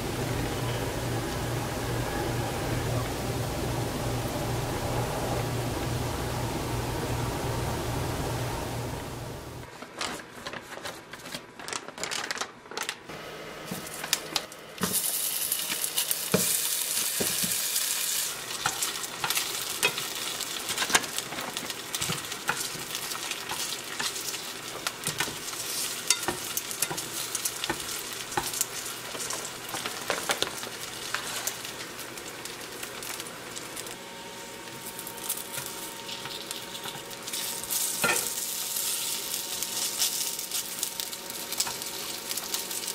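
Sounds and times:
dumplings sizzling in oil: 14.8s - 42.9s.

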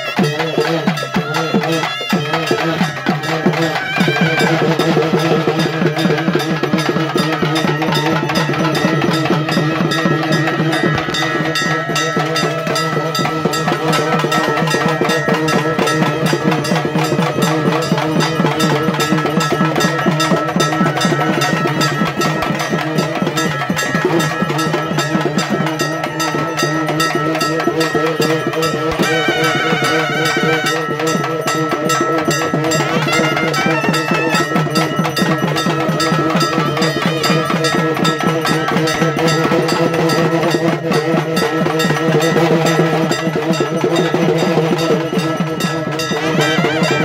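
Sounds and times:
fast dense drumming: 0.0s - 47.0s
steady held tones: 0.8s - 39.4s.

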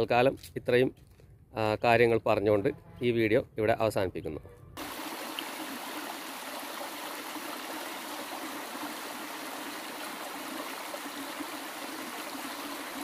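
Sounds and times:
stream flowing over rocks: 4.8s - 13.0s.

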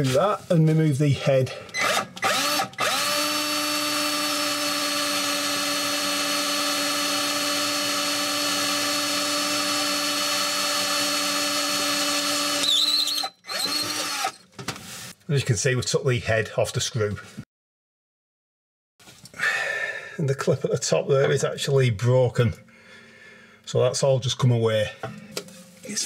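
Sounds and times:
cordless drill drilling metal: 1.7s - 14.5s.

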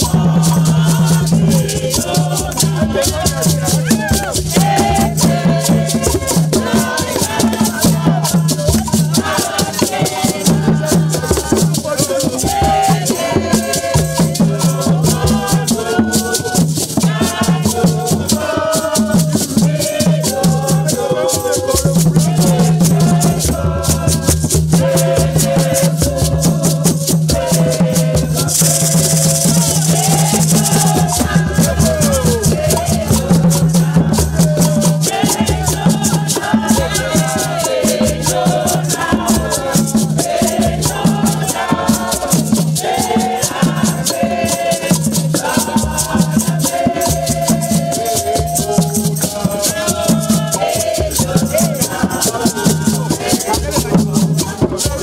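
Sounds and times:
group singing: 0.0s - 55.0s
hand drums: 0.0s - 55.0s
gourd rattles shaken: 28.4s - 55.0s.

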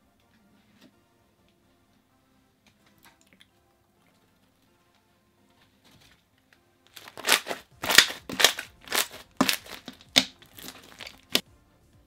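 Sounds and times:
crunchy slime squishes: 6.9s - 11.4s.

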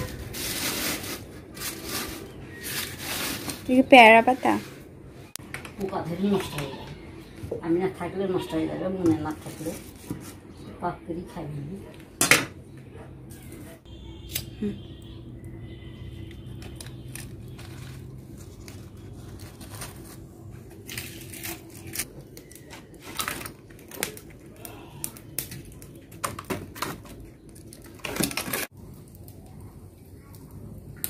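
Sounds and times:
leaves and paper rustling: 0.0s - 4.8s, 16.4s - 24.5s.

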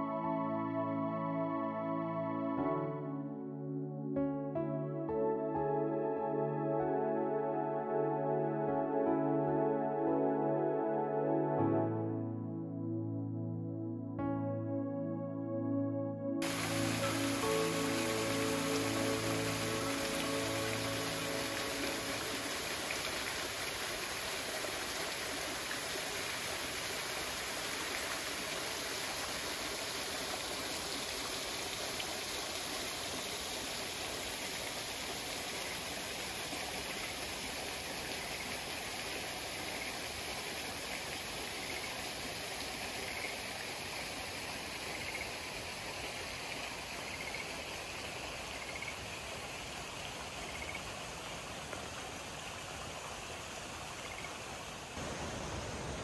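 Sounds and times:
waterfall splashing into pool: 16.4s - 56.0s.

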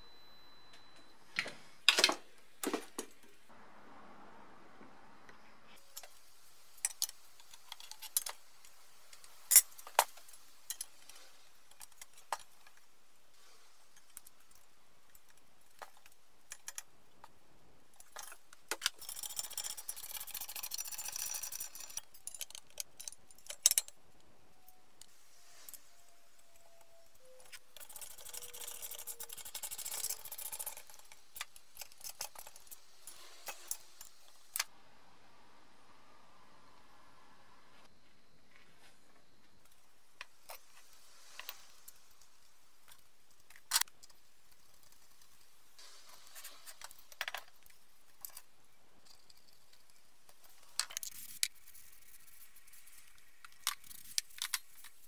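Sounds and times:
metal parts clinking: 17.9s - 24.8s, 25.6s - 34.7s.

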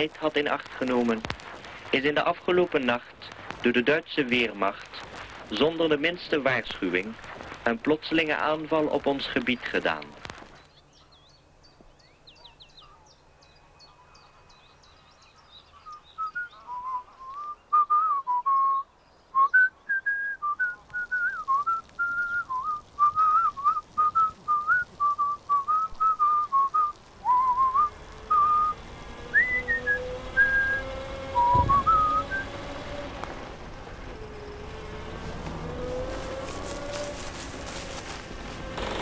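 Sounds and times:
faint bird chirps: 10.5s - 28.8s
person whistling a tune: 16.2s - 18.8s, 19.4s - 32.5s
low drone rising in pitch: 26.5s - 39.0s.

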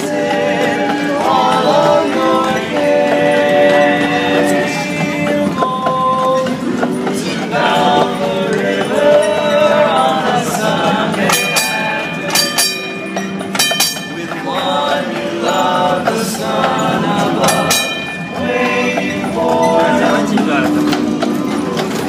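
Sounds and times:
men singing in close harmony: 0.0s - 22.0s.

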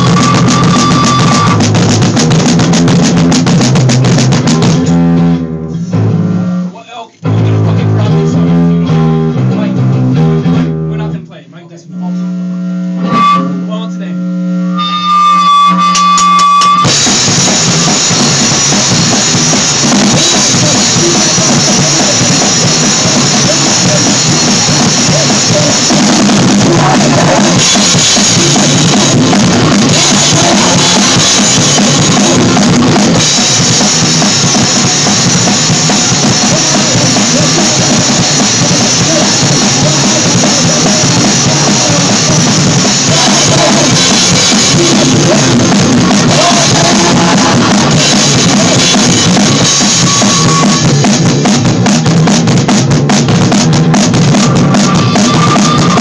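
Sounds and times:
bass drum: 0.0s - 11.1s, 15.8s - 56.0s
guitar: 0.0s - 56.0s
cymbals: 14.6s - 51.7s, 54.0s - 56.0s.

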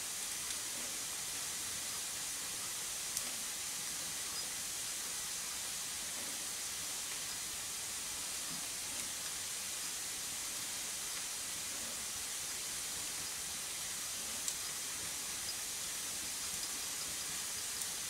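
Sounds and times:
steady hiss: 0.0s - 18.0s
faint ticks: 3.1s - 3.4s, 14.2s - 18.0s.

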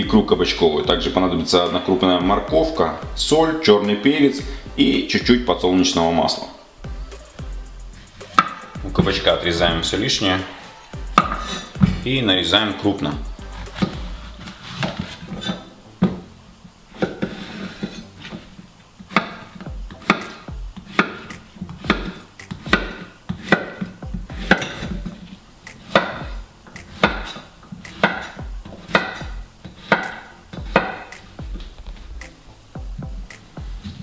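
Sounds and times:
knife chopping on wooden board: 19.1s - 25.1s, 25.7s - 31.4s.

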